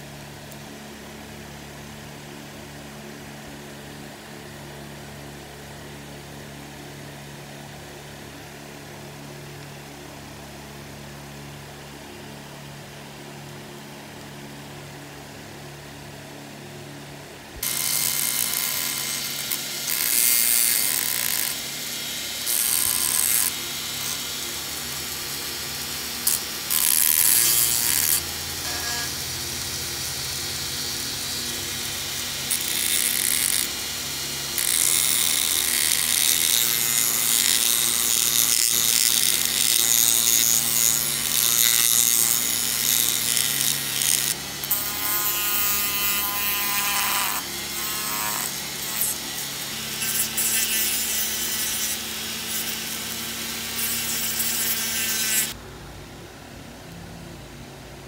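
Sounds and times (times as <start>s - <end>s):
rotary tool motor running: 17.6s - 55.6s
scratchy grinding on metal: 17.6s - 55.6s.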